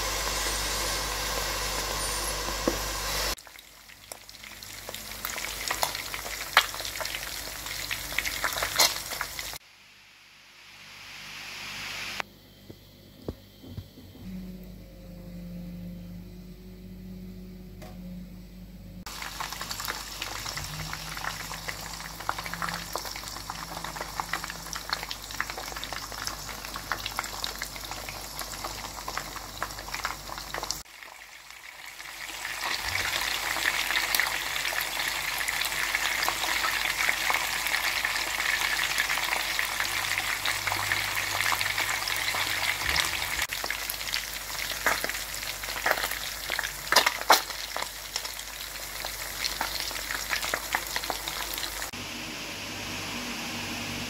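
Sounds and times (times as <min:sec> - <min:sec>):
low hum: 0:00.0 - 0:03.4, 0:13.2 - 0:19.1
fish sizzling in hot oil: 0:00.0 - 0:09.6, 0:19.1 - 0:52.0.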